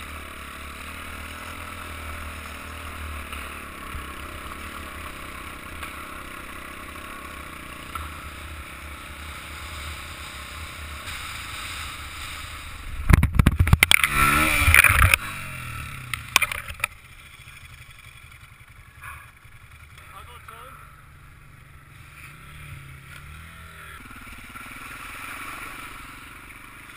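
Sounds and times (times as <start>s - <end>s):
motorcycle engine running: 0.0s - 26.9s
motorcycle crashing with knocks: 11.0s - 15.3s, 16.2s - 17.0s.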